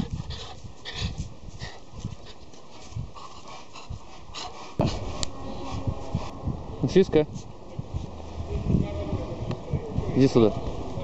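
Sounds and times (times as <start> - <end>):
small dog panting: 0.0 - 6.3.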